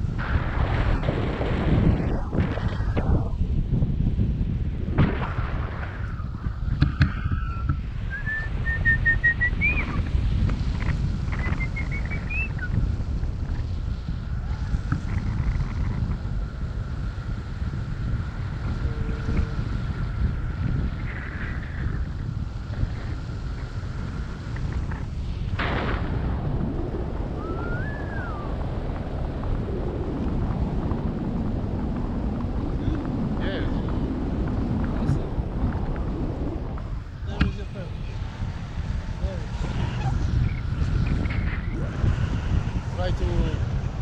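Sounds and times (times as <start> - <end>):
wind rushing over microphone: 0.0 - 44.0
high whistled notes: 7.5 - 10.0, 27.4 - 28.5.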